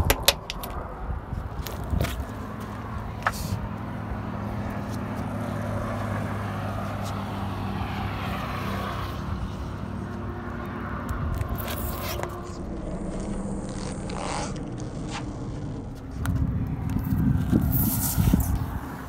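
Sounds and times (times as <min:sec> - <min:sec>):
grit crackling under tyre: 0:00.0 - 0:19.0
car engine idling: 0:02.3 - 0:17.4.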